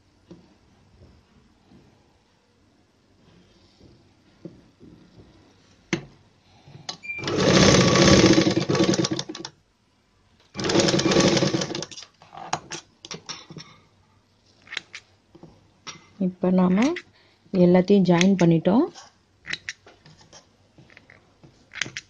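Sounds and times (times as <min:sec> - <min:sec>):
sewing machine stitching: 0:07.2 - 0:09.5, 0:10.6 - 0:12.0.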